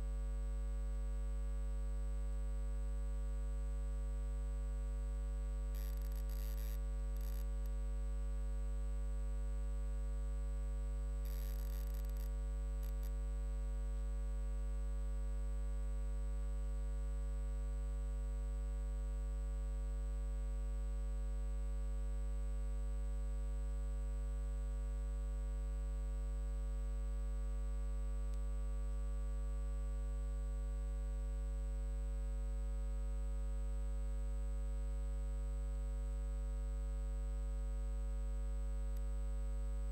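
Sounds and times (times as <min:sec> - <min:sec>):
electrical mains hum: 0:04.7 - 0:16.2.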